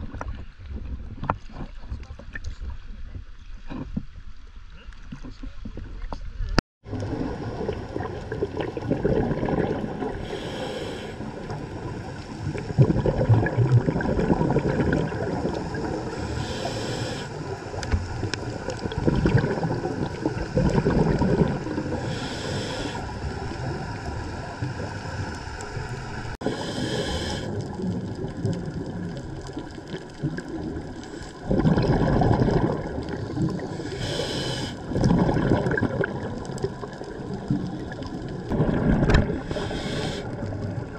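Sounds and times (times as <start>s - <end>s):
exhaled bubbles gurgling: 6.9s - 40.9s
regulator inhalation hiss: 10.2s - 11.4s, 15.8s - 17.4s, 22.0s - 23.3s, 26.4s - 27.6s, 33.7s - 34.8s, 39.4s - 40.3s.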